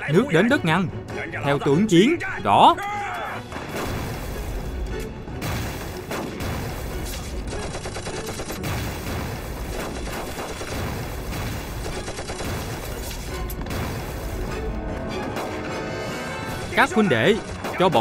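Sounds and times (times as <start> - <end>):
dramatic film music: 0.0 - 18.0
explosions: 3.5 - 4.8, 5.4 - 7.6, 8.6 - 15.7
rifle and machine-gun fire: 5.4 - 14.6, 17.4 - 18.0.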